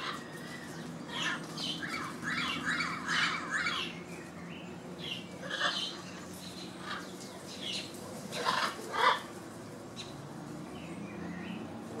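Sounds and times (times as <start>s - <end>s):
parrots squawking: 0.0s - 4.0s, 5.0s - 9.3s.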